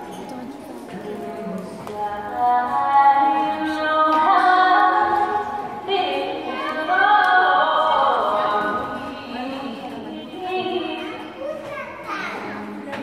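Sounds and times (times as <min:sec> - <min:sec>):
woman singing long held notes: 0:01.1 - 0:11.2.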